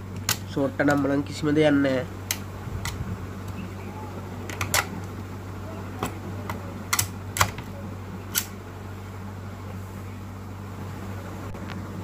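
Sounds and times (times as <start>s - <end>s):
low electrical hum: 0.0s - 12.0s
sharp clicks: 8.3s - 8.6s.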